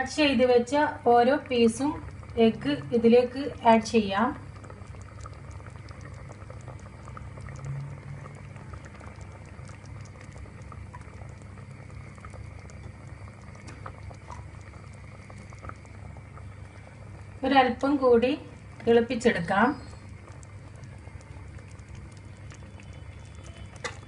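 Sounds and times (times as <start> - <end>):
curry bubbling in a pot: 0.0 - 24.0.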